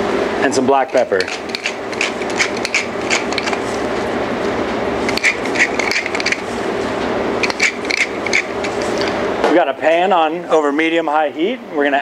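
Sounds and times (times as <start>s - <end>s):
pepper mill grinding: 0.7s - 3.8s, 5.0s - 6.5s, 7.4s - 9.2s.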